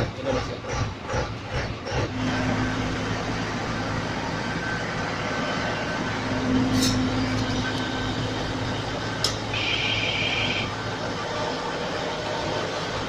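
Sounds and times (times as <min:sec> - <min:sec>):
diesel engine running: 0:00.0 - 0:13.0
high steady beep: 0:09.5 - 0:10.7.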